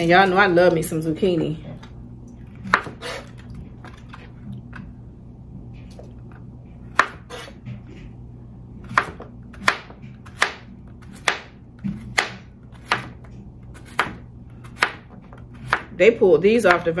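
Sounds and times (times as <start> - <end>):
knife chopping on cutting board: 2.6 - 3.3, 6.9 - 8.0, 8.8 - 16.0.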